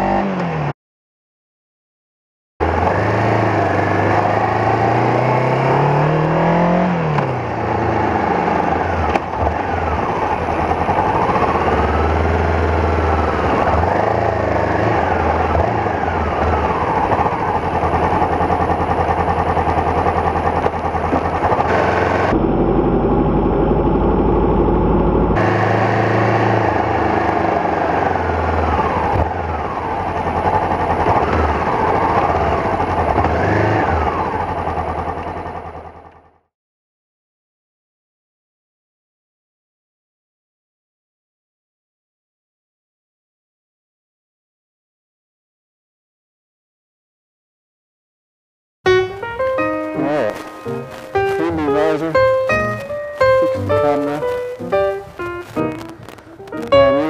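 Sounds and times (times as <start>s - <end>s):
motorcycle engine running: 2.6s - 36.5s, 48.9s - 57.0s.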